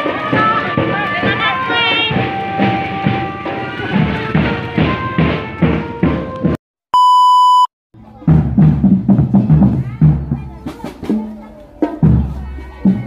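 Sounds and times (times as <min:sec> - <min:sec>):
marching drum band playing: 0:00.0 - 0:06.6, 0:08.2 - 0:13.0
test-tone beep: 0:07.0 - 0:07.7.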